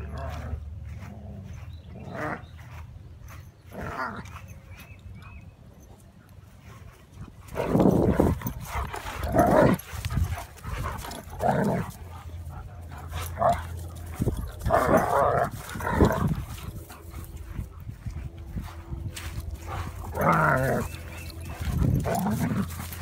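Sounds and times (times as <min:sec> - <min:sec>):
dogs growling and barking: 0:00.0 - 0:02.8, 0:03.4 - 0:04.6, 0:07.1 - 0:23.0.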